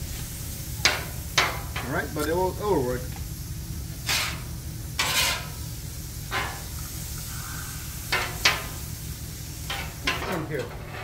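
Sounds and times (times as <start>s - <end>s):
faint sizzling: 0.0s - 11.0s
low steady hum: 0.0s - 11.0s
metal spatulas scraping griddle: 4.0s - 5.6s, 9.7s - 11.0s.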